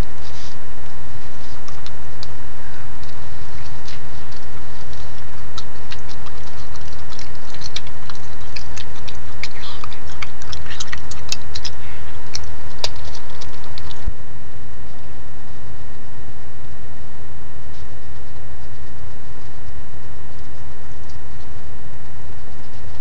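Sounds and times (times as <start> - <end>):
small clicks and scratches: 0.0 - 2.4, 3.0 - 14.1
electrical hum and whine: 0.0 - 23.0.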